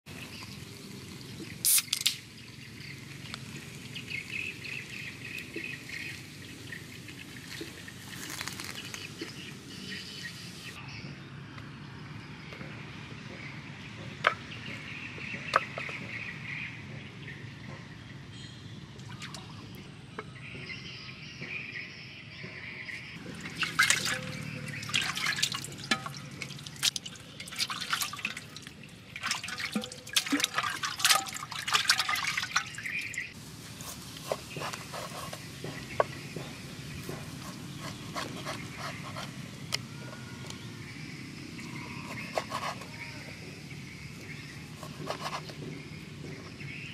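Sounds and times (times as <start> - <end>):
water splashing and sloshing: 0.1 - 9.8, 18.9 - 19.8, 23.2 - 39.7.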